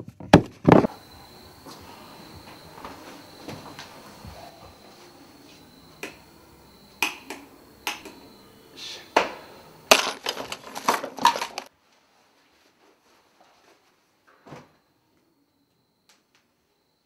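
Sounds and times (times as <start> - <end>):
light switch click: 7.0 - 8.2
small objects clattering: 9.9 - 11.7.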